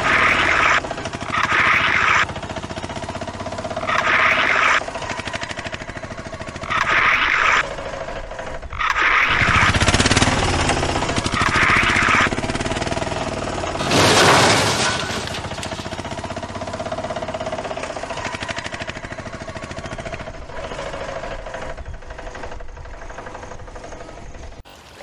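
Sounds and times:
fast mechanical rattle: 0.0s - 16.4s.

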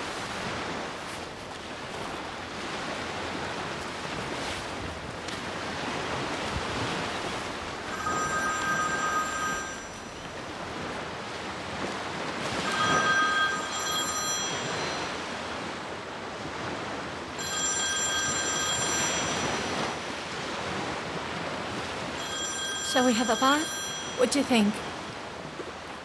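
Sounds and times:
surf breaking on shore: 0.0s - 26.0s
phone ringing: 7.4s - 11.1s, 12.4s - 15.7s, 17.2s - 20.2s, 22.0s - 25.2s.

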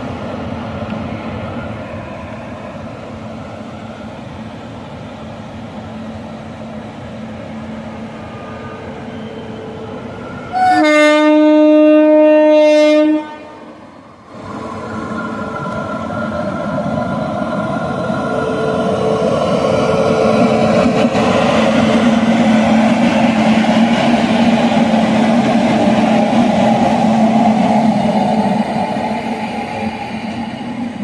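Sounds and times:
electric locomotive humming: 0.0s - 31.0s
locomotive horn blast: 10.6s - 13.6s.

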